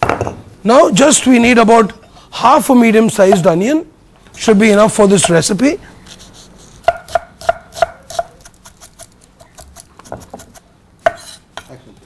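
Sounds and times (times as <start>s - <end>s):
knife chopping on wooden board: 6.8s - 9.0s, 9.6s - 11.7s.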